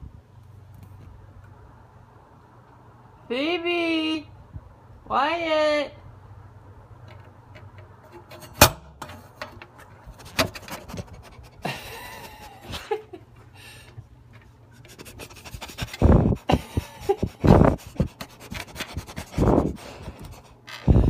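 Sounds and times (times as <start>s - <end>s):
puppies panting: 10.9s - 12.9s, 14.8s - 20.6s.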